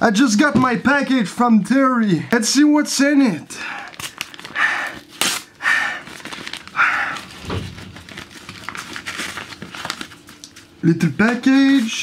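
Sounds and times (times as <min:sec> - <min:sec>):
paper rustling and crinkling: 0:03.9 - 0:05.4, 0:06.0 - 0:12.0
paper envelope tearing: 0:03.9 - 0:05.5, 0:06.1 - 0:12.0.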